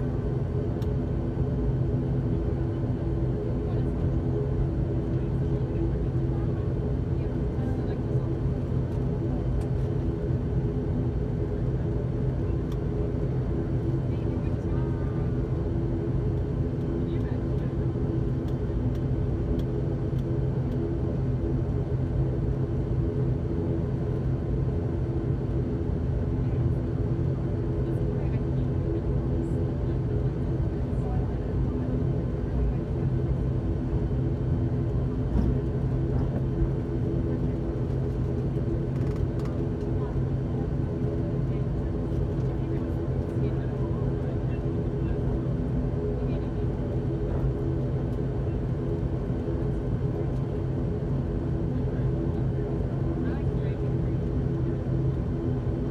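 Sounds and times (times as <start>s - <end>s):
turboprop engine drone in cabin: 0.0s - 55.9s.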